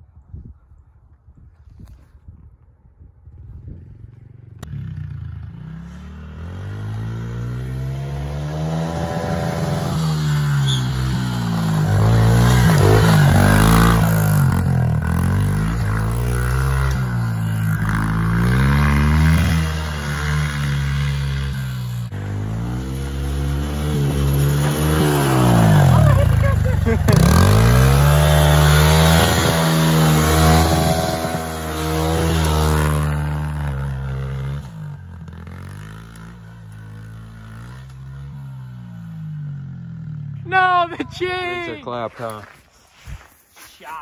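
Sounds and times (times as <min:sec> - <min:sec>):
small motorbike engine revving: 0:04.6 - 0:39.2.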